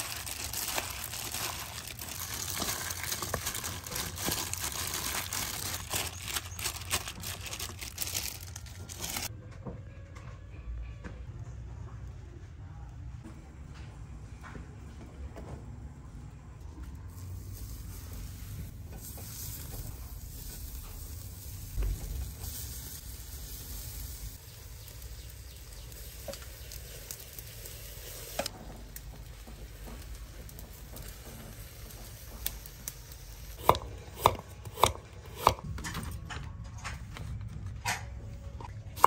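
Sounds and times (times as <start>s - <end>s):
fire sizzling and crackling: 0.0s - 9.3s, 17.0s - 36.1s.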